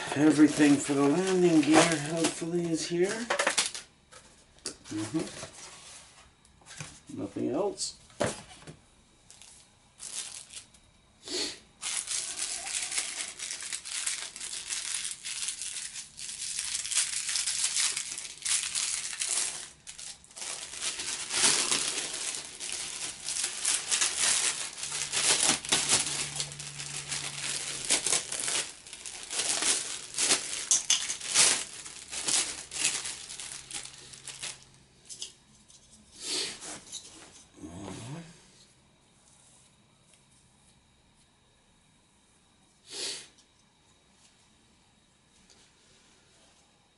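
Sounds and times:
plastic bags crinkling: 0.0 - 3.9, 9.3 - 10.8, 11.8 - 34.8.

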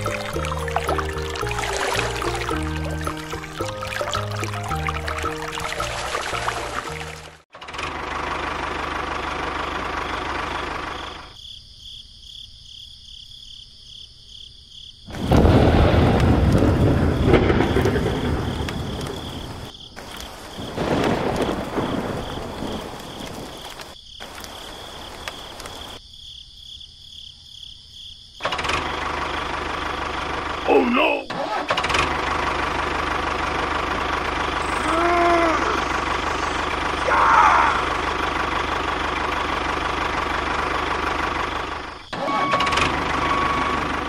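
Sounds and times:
rain falling: 0.0 - 7.4, 15.1 - 26.0, 32.5 - 41.7
rolling thunder: 15.1 - 19.7, 20.6 - 23.6.

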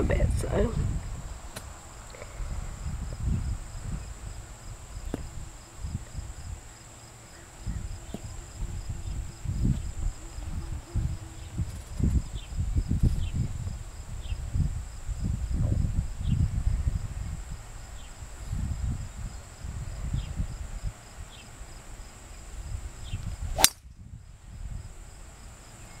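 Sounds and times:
wind buffeting microphone: 0.0 - 6.7, 7.4 - 21.3, 22.4 - 25.4
golf club striking ball: 23.6 - 23.8.

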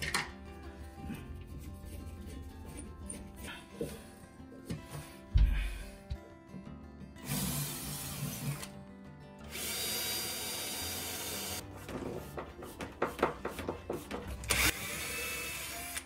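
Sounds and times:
background music: 0.0 - 16.0
power drill running: 9.5 - 11.6, 14.5 - 16.0.

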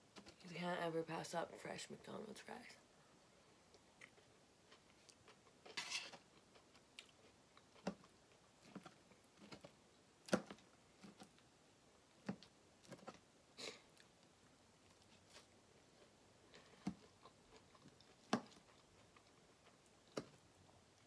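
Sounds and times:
quiet chewing: 3.6 - 11.5, 12.1 - 21.0
fork scraping metal pan: 5.7 - 6.2.

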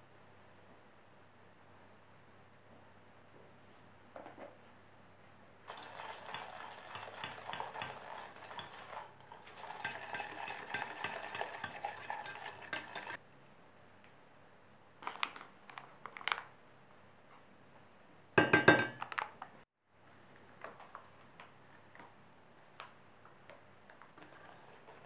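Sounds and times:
utensils scraping a saucepan: 5.7 - 13.2, 24.2 - 25.0.

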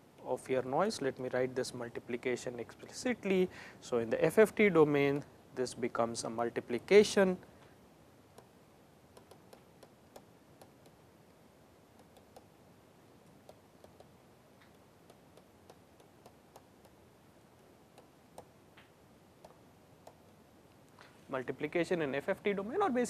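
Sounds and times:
low steady hiss: 0.0 - 23.0
stylus tapping on tablet: 9.1 - 11.0, 11.9 - 12.6, 13.2 - 17.0, 17.6 - 20.4.

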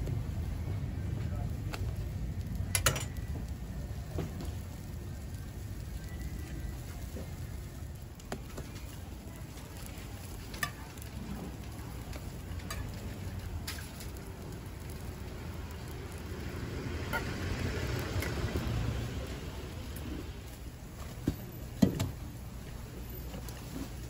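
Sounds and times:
food sizzling on a griddle: 0.1 - 24.0
metal clinks of utensils: 2.8 - 3.2.

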